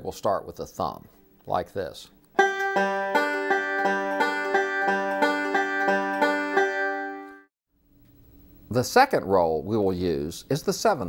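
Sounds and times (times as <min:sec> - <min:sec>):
banjo fingerpicking: 0:02.4 - 0:07.5.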